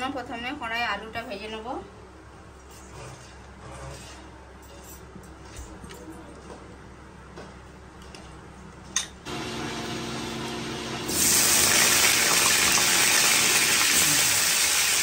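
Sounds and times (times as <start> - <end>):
potatoes sizzling in hot oil: 11.1 - 15.0.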